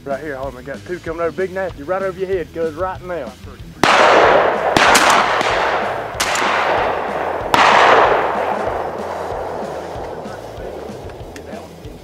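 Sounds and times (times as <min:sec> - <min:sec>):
shotgun shots with echo: 0:03.8 - 0:11.5.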